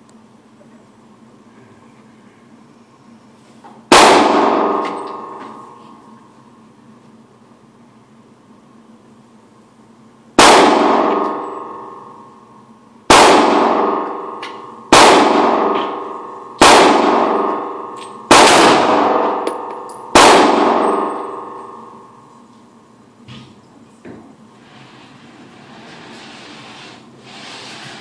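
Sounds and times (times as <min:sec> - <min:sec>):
handgun shots echoing: 0:03.9 - 0:06.0, 0:10.4 - 0:12.3, 0:13.1 - 0:22.3.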